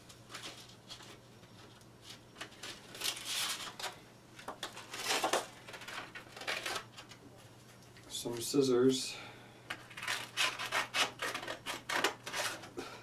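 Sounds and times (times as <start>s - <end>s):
sandpaper rustling: 10.0s - 12.6s.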